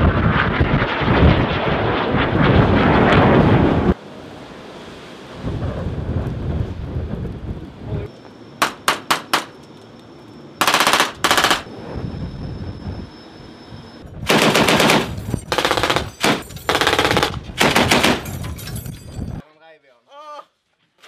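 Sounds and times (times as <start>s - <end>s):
automatic rifle fire: 10.6s - 11.7s, 14.3s - 18.2s
heavy machine gun bursts: 10.6s - 11.7s, 14.3s - 18.3s.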